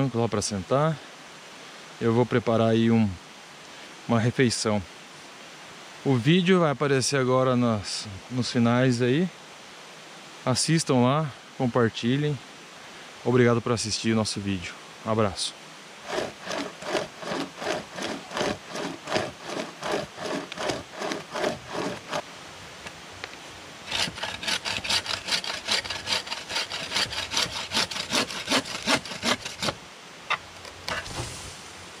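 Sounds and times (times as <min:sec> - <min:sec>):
bow saw cutting log: 0:16.0 - 0:22.2, 0:23.9 - 0:31.7.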